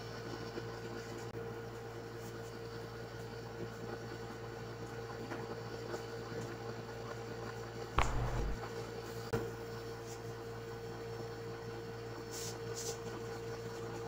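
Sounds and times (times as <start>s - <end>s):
low room hum: 8.0s - 8.7s.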